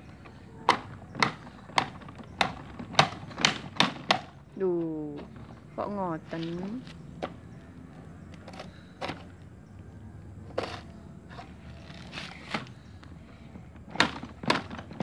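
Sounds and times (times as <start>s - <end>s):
toy excavator scraping dirt: 6.2s - 9.4s, 10.5s - 13.0s.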